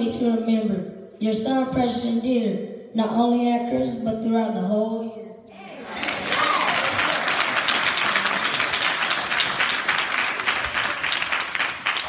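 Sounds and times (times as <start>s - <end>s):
audience clapping: 5.8s - 12.0s.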